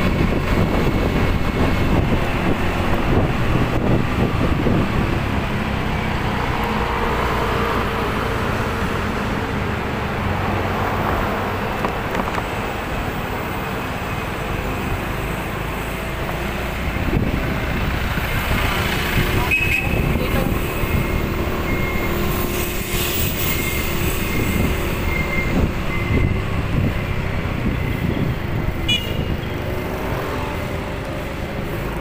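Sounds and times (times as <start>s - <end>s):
vehicle engine and road noise: 0.0s - 32.0s
high-pitched squeal: 19.6s - 26.7s.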